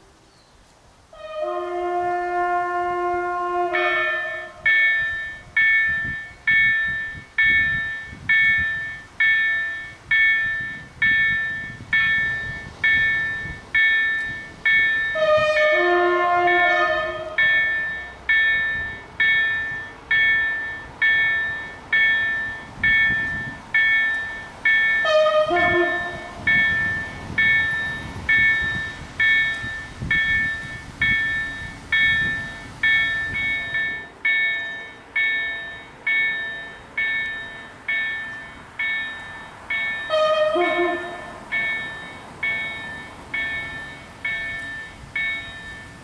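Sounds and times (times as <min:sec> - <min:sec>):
level crossing warning bell: 0:03.7 - 0:46.0
short horn: 0:40.1 - 0:41.4.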